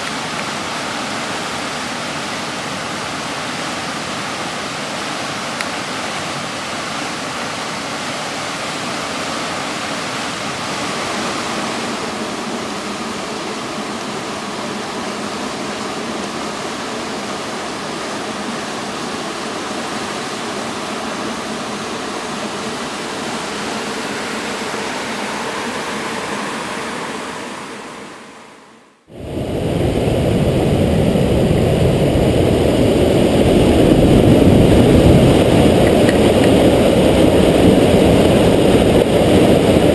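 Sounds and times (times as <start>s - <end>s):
water rushing over dam: 0.0s - 39.9s
muffled underwater rumble: 29.1s - 39.9s.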